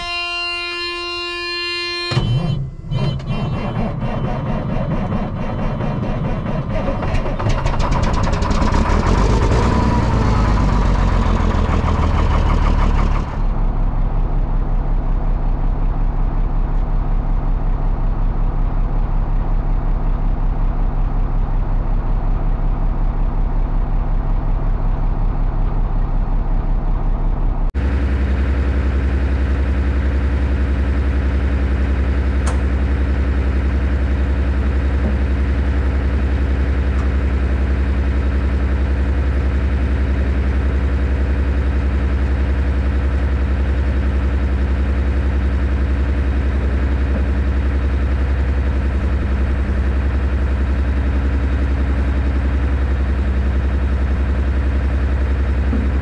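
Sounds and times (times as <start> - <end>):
steady tone: 0.0 - 6.7
diesel engine idling: 0.6 - 56.0
diesel engine cranking and starting: 2.1 - 56.0.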